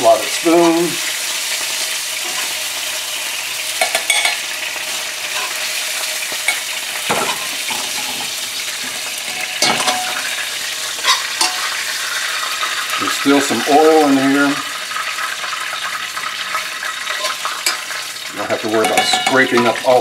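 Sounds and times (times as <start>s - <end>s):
chicken sizzling in oil: 0.0s - 20.0s
metal spoon scraping a pan: 2.2s - 2.6s, 3.7s - 12.8s, 16.2s - 18.0s, 18.7s - 19.8s
spoon clinking against metal: 3.8s - 4.4s, 11.1s - 11.6s, 18.8s - 19.7s.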